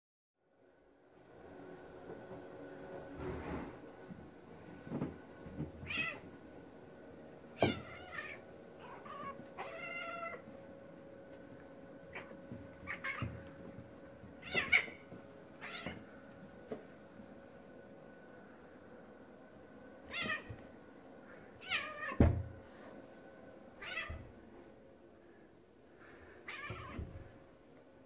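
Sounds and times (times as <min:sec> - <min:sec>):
cats meowing and yowling: 0:05.8 - 0:06.3, 0:07.6 - 0:10.5, 0:12.0 - 0:13.5, 0:14.4 - 0:16.1, 0:20.1 - 0:20.6, 0:21.6 - 0:22.3, 0:23.8 - 0:24.3, 0:26.4 - 0:27.4.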